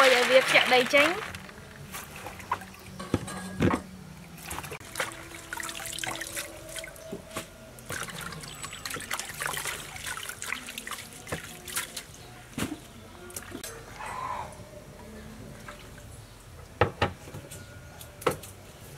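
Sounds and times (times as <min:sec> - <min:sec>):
water trickling and dripping: 0:04.3 - 0:13.7.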